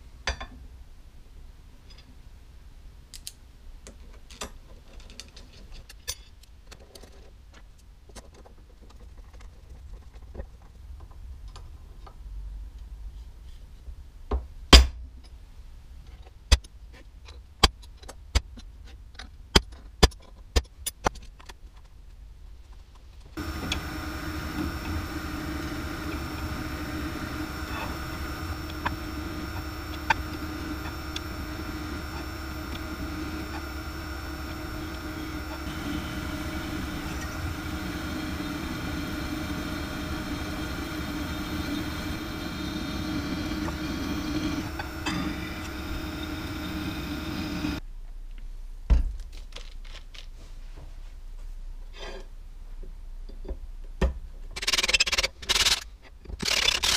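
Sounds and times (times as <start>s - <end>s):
drill press milling metal: 23.4s - 47.8s.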